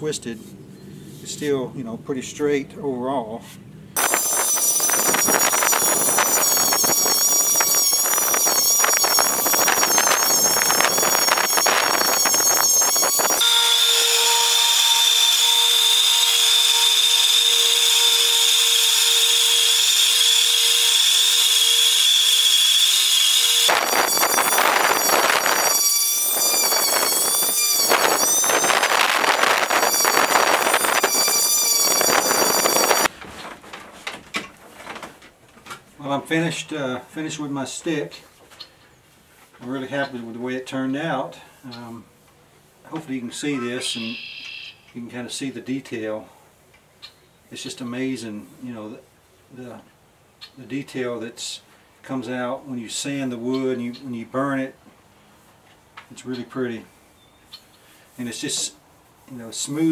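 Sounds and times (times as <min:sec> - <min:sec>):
electric sander grinding wood: 0:04.0 - 0:33.1.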